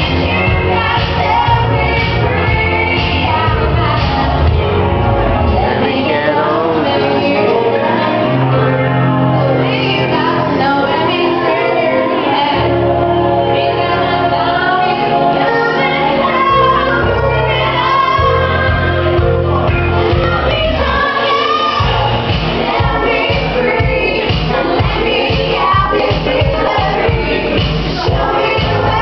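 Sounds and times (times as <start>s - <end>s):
woman singing karaoke: 0.0s - 4.7s, 5.5s - 29.0s
backing track with bass: 0.0s - 29.0s
steady beat: 21.8s - 29.0s.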